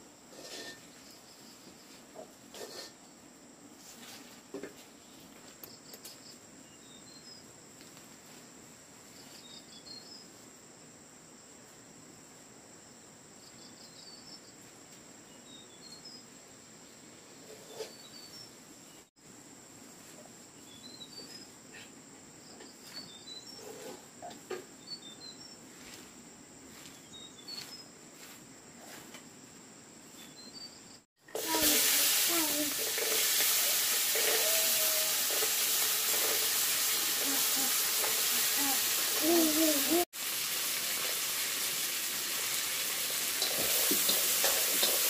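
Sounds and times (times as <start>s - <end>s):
insect trill: 30.0s - 39.4s
food frying in hot oil: 31.2s - 45.0s.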